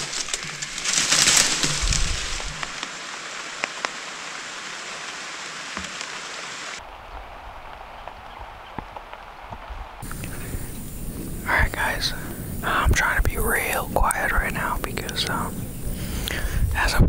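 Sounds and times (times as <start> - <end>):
rain pattering on leaves: 0.0 - 16.5
drop ticks: 12.8 - 15.5.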